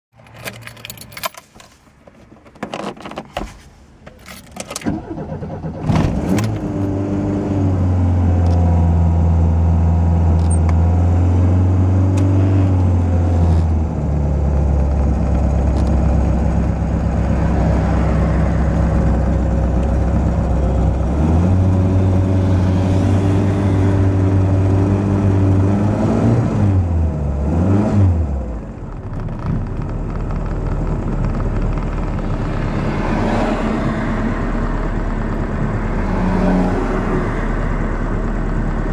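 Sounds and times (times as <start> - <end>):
car keys jangling in ignition: 0.2 - 3.3, 4.0 - 5.2
car engine cranking and starting: 0.2 - 38.9
car engine revving and idling: 5.1 - 38.9.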